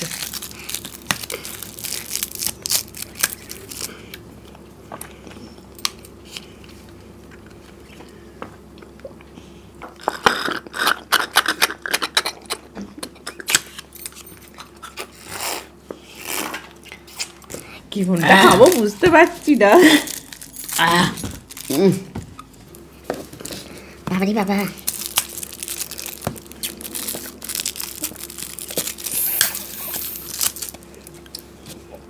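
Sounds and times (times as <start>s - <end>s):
paper cartons crinkling: 0.0s - 4.0s, 18.0s - 23.9s, 24.8s - 30.9s.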